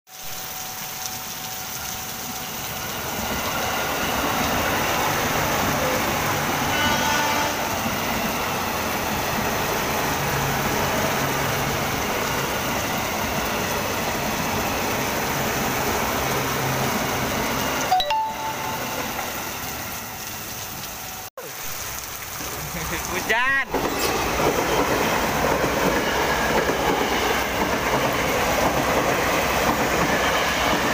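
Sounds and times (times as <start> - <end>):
heavy rain: 0.1 - 30.9
electric train passing: 2.5 - 21.2, 23.7 - 30.9.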